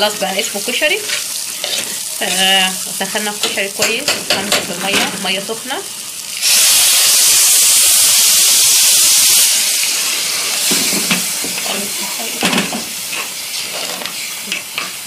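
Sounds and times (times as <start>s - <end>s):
water hissing in hot fat: 0.0s - 15.0s
spoon stirring and scraping pot: 0.9s - 2.5s, 12.7s - 15.0s.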